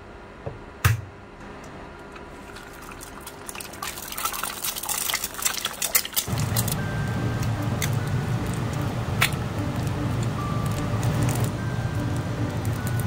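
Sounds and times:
egg sizzling in hot oil: 2.6s - 13.0s.

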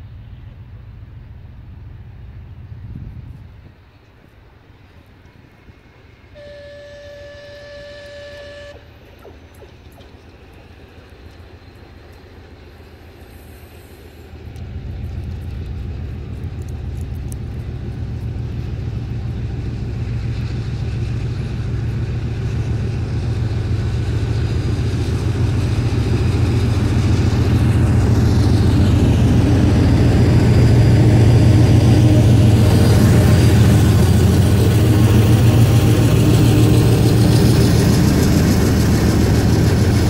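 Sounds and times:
diesel locomotive engines droning: 0.0s - 40.0s.

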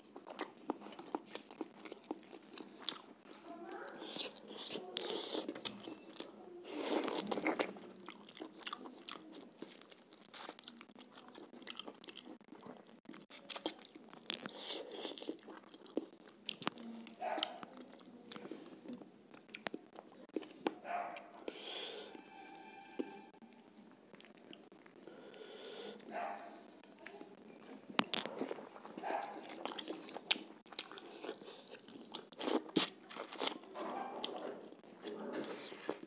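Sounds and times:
person chewing wet crunching: 0.0s - 21.9s, 23.5s - 36.0s.

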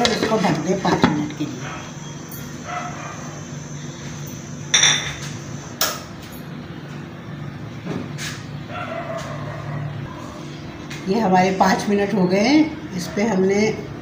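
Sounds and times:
glass and metal kitchenware clinks: 4.7s - 5.2s.

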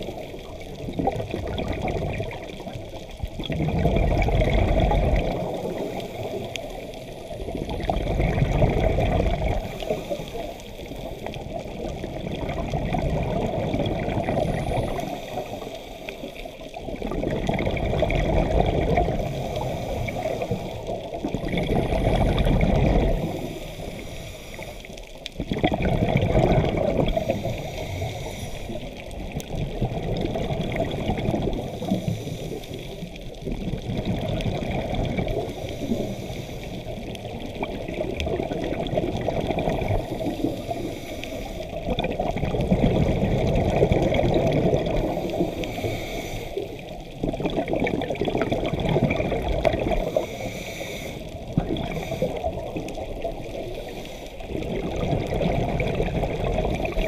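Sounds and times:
exhaled bubbles gurgling: 0.0s - 57.0s
regulator inhale hiss: 5.5s - 7.8s, 9.5s - 11.3s, 14.6s - 16.7s, 19.2s - 21.1s, 23.1s - 25.2s, 27.0s - 29.1s, 31.5s - 33.2s, 35.4s - 37.2s, 39.8s - 41.9s, 45.0s - 47.0s, 50.0s - 54.6s.

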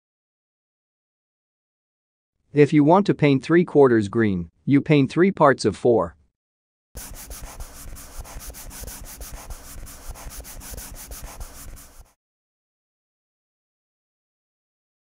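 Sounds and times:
marker scribbling on paper: 7.0s - 12.2s.

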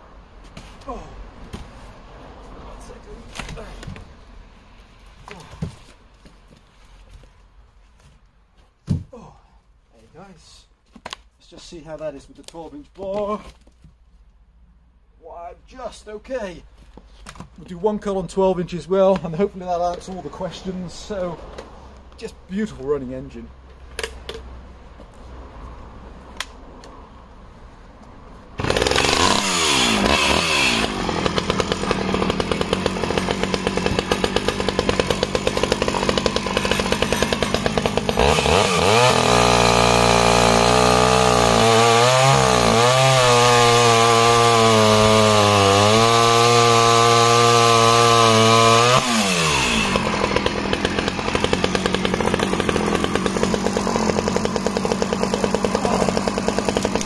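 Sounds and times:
chainsaw cutting a log: 28.6s - 57.0s.

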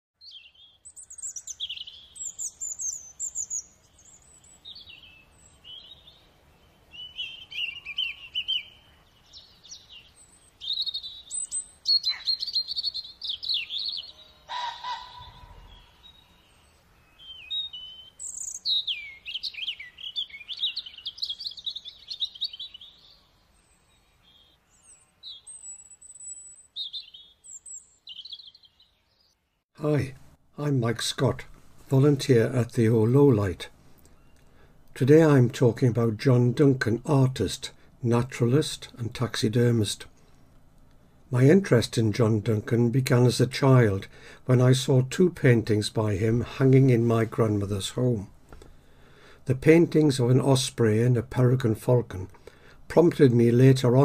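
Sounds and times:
birds singing and calling: 0.2s - 29.6s.

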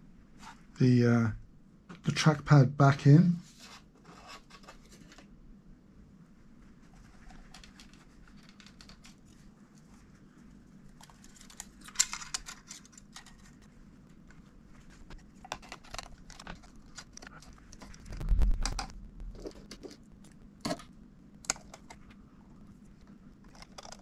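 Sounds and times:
laptop parts clicking and rattling: 7.1s - 9.4s, 10.9s - 20.0s, 20.6s - 22.1s, 23.4s - 24.0s.

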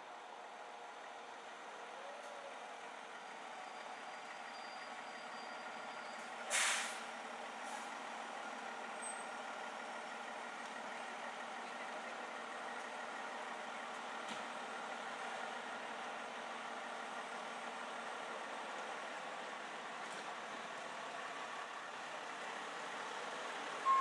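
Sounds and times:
fire engine idling: 0.0s - 24.0s
air brakes hissing: 6.0s - 8.0s.

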